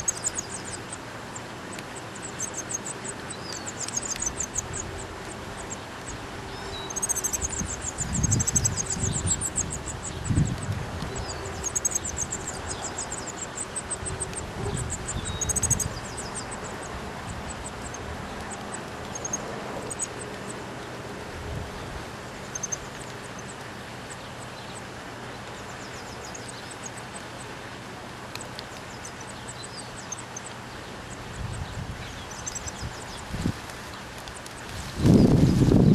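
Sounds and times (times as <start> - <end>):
nestlings chittering: 0.0 - 21.0, 21.8 - 27.5, 28.3 - 35.9
wind on microphone: 6.4 - 13.2, 13.8 - 18.6, 21.2 - 22.2, 31.3 - 33.8, 34.7 - 35.9.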